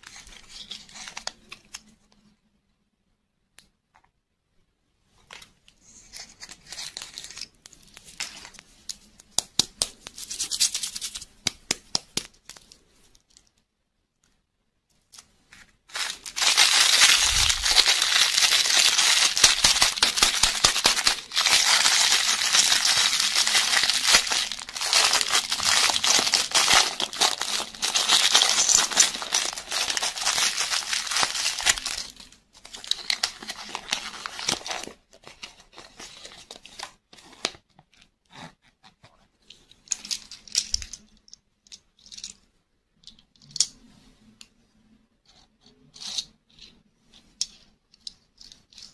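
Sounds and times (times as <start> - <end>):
clicks and rustles of handling: 5.1 - 43.8, 45.7 - 48.9
plastic packet crinkling and tearing: 15.9 - 36.9.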